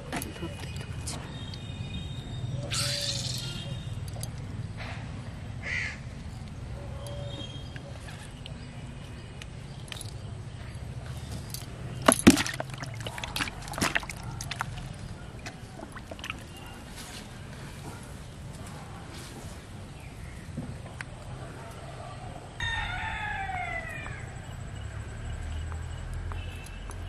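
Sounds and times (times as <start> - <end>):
bird calls: 0.0 - 4.3, 6.7 - 12.1
low outdoor background: 0.0 - 27.0
fish splashing in basin of water: 12.0 - 16.7.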